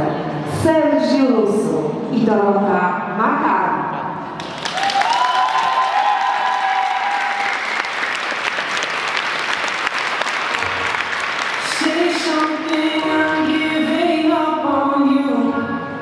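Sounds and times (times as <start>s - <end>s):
audience applauding: 4.4s - 13.6s.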